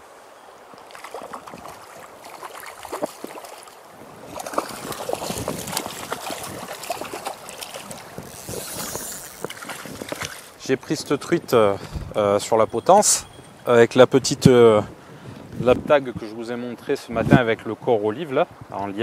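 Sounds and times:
river current rushing: 0.0 - 15.2
water splashing and sloshing: 0.6 - 13.7.

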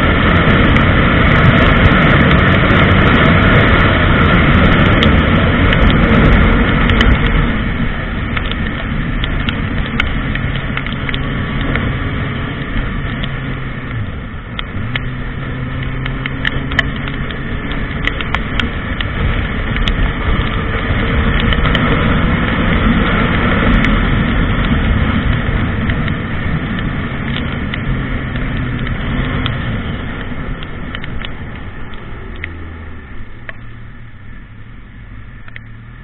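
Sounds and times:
motorcycle engine at speed: 0.0 - 36.0
wind rush: 0.0 - 36.0
sharp clicks: 15.8 - 20.6, 24.6 - 34.0.

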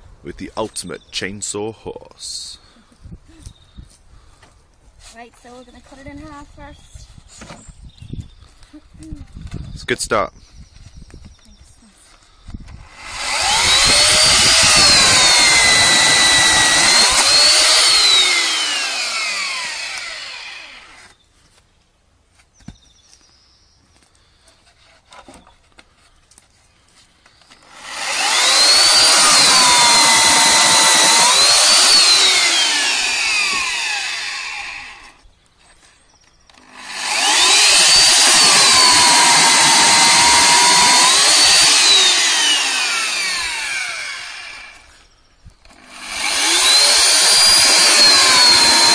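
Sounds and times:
electric chainsaw cutting log: 12.8 - 21.2, 27.5 - 35.2, 36.5 - 48.9.

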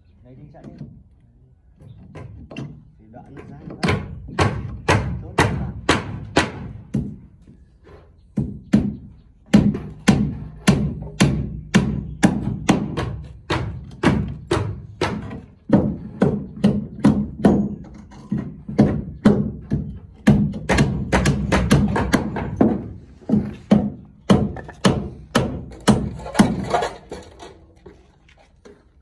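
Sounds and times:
hammer driving nails into wood: 18.3 - 27.0.

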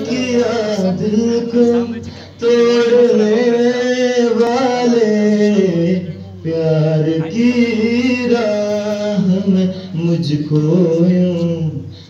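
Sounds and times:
man singing long notes: 0.0 - 12.0.

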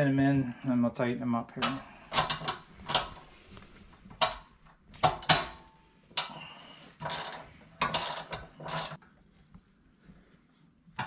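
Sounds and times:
ratchet wrench clicking: 7.0 - 9.0.

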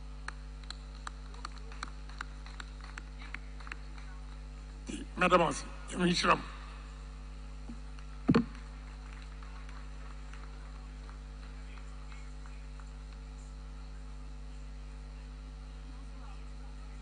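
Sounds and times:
low electrical hum: 0.0 - 17.0
brief thump: 8.3 - 8.6.

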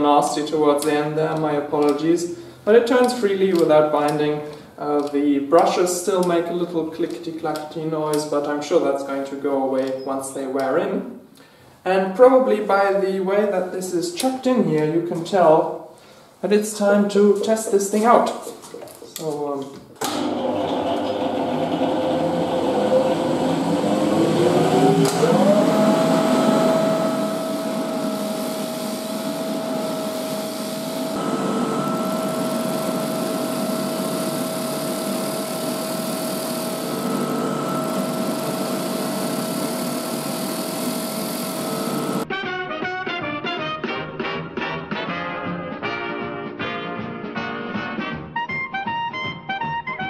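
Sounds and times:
starter motor whining: 20.0 - 42.2.

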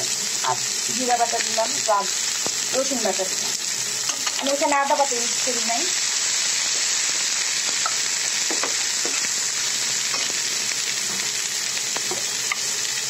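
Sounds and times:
vegetables sizzling in oil: 0.0 - 13.0
spatula tapping and scraping pan: 7.8 - 9.3.

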